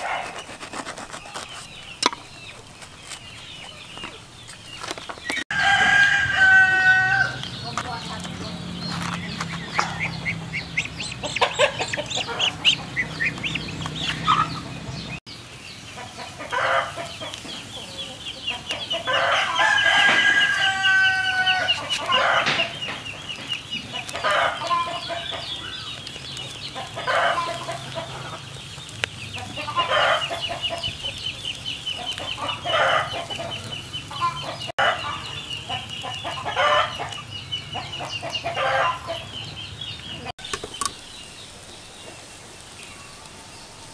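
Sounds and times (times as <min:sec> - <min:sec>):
chickens clucking: 0:00.0 - 0:43.9
rooster crowing: 0:05.5 - 0:07.6, 0:19.0 - 0:22.8, 0:34.2 - 0:35.4, 0:38.5 - 0:39.3.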